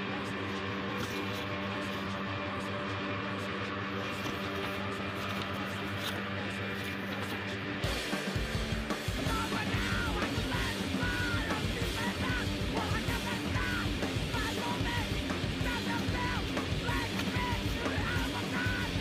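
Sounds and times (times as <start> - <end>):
punk rock band playing: 0.0 - 19.0
shouted vocals: 9.1 - 19.0.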